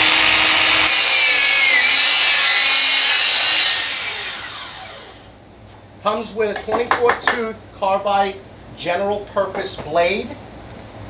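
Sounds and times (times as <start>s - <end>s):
miter saw cutting plywood: 0.0s - 5.3s
saw blade spinning down: 0.0s - 5.3s.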